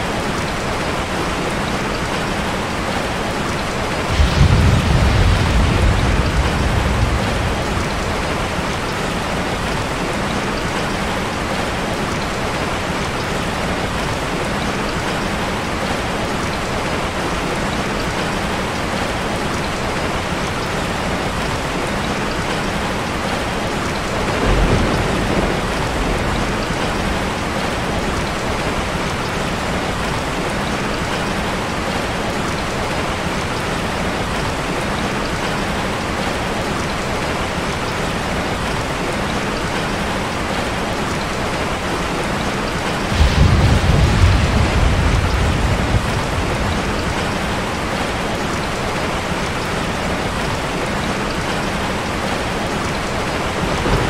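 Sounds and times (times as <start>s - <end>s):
steady rain: 0.0s - 54.0s
low thunder rumble: 4.0s - 9.7s, 24.3s - 27.8s, 43.0s - 47.5s, 53.6s - 54.0s.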